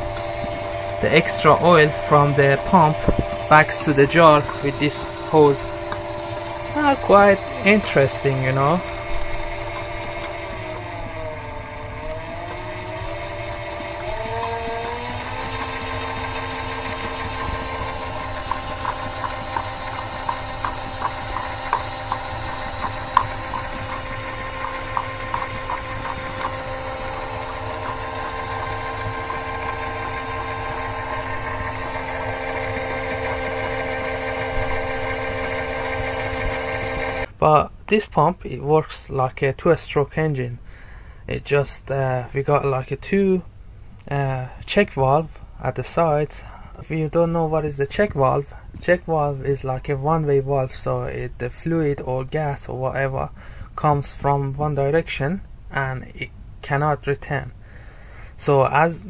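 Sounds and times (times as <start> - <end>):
lathe machine whine: 0.0 - 37.4
light regular ticks: 15.2 - 30.3.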